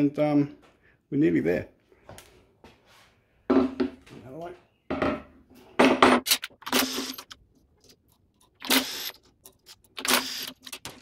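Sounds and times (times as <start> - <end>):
impact driver whirring: 6.6 - 7.3, 8.6 - 9.2, 10.0 - 10.6.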